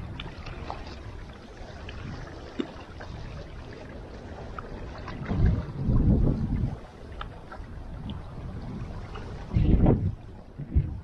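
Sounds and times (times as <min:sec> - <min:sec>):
waves lapping on rocks: 0:00.0 - 0:11.0
wind rumbling on microphone: 0:00.0 - 0:11.0.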